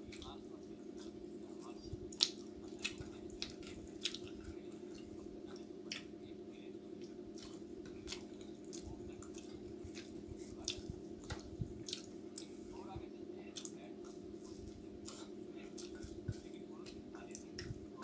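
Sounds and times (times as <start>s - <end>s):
steady low hum: 0.0s - 18.0s
wet chewing: 0.0s - 18.0s
squishy mouth and finger sounds: 1.0s - 6.2s.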